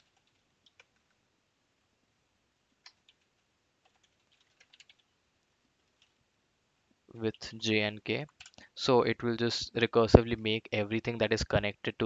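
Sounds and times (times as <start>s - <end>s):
computer keyboard typing: 0.0s - 1.2s, 2.8s - 5.1s, 8.2s - 8.6s.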